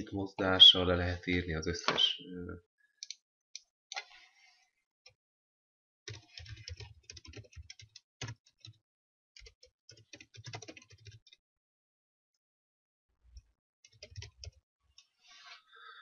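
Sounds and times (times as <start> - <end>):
typing on computer keyboard: 6.1 - 8.8, 9.4 - 11.4, 13.9 - 14.6.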